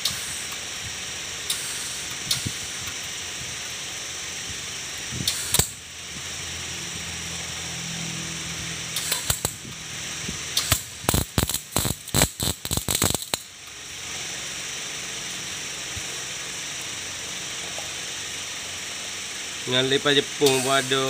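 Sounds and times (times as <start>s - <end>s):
welding arc crackling: 0.0s - 21.0s
steady hiss: 9.0s - 21.0s.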